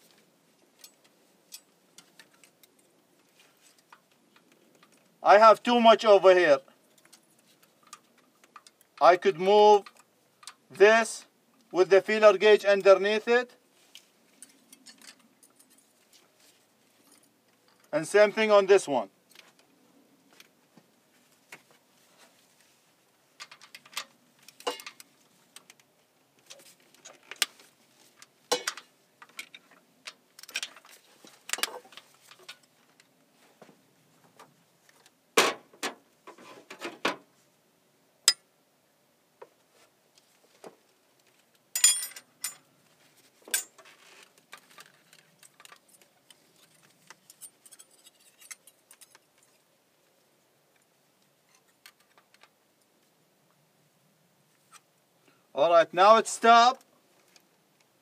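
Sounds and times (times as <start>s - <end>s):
ringing metal clink: 41.8s - 42.6s.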